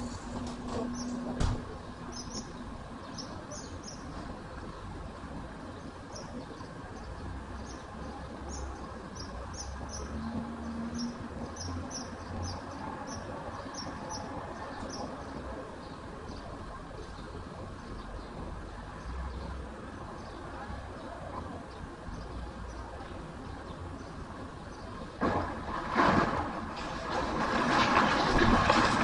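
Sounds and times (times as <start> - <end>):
bulldozer engine rumbling: 0.0 - 25.8.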